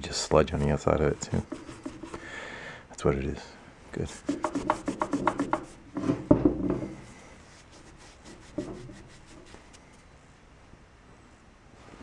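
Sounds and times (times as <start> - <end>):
cloth rag rubbing metal: 0.4 - 2.2, 4.1 - 5.8, 7.4 - 9.8.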